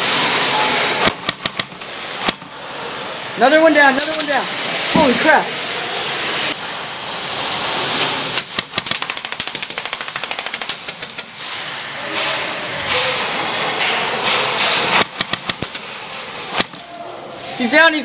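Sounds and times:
airsoft gun firing: 0.0 - 2.5, 8.4 - 11.4, 14.6 - 16.9.

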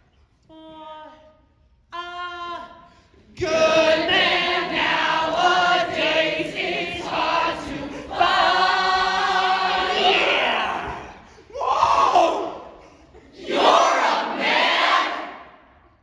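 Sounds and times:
cast singing: 1.9 - 11.2.

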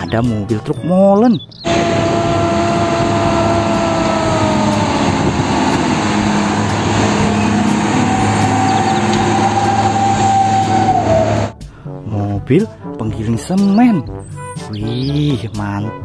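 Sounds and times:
traffic and tyre noise: 1.6 - 11.6
truck diesel engine: 1.6 - 11.6.

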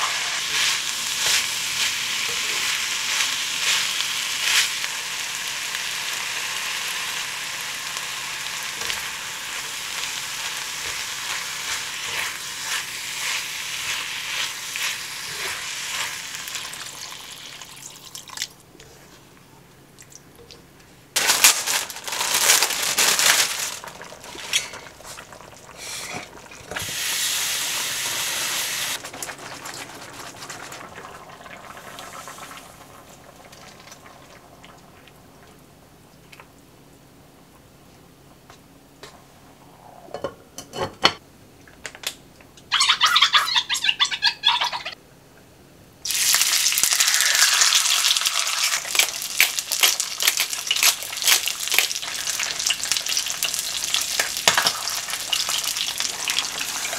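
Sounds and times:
meat and vegetables sizzling in pot: 0.0 - 18.2, 21.2 - 34.1, 46.0 - 56.9.

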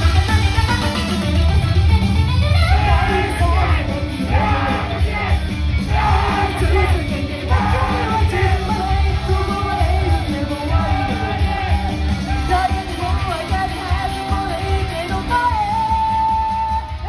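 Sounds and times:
live rock band: 0.0 - 17.0
shouted vocals: 2.7 - 14.3
person singing: 2.7 - 17.0.

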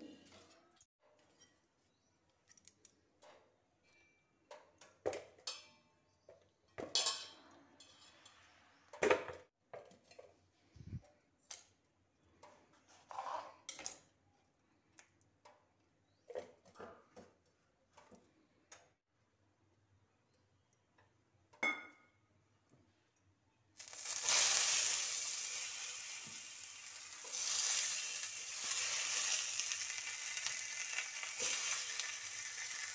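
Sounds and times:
steel bowl and knife clinking: 6.8 - 8.6.

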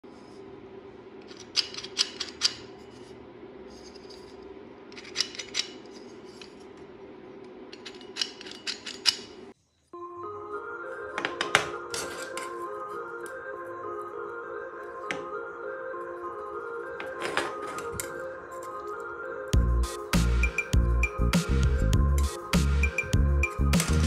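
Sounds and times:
music: 9.9 - 24.0.

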